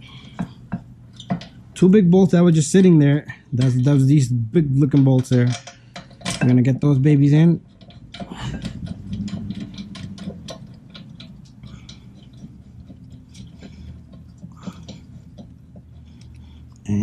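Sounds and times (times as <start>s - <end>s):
low background hum: 0.0s - 17.0s
small metallic clicks: 4.9s - 6.7s, 7.7s - 16.9s.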